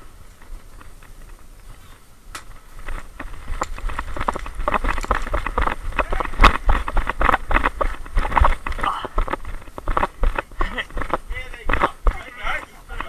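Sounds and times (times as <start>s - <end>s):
wind rumble on microphone: 0.0s - 13.0s
twig cracking: 2.3s - 12.2s
running footsteps on dry leaves: 2.6s - 13.0s.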